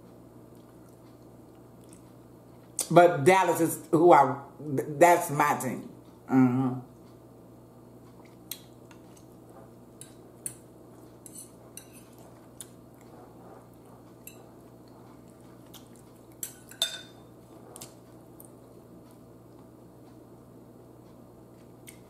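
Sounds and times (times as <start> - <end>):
low steady hum: 0.0 - 22.0
fork clinking against bowl: 11.2 - 12.2, 14.1 - 14.6, 15.8 - 18.0.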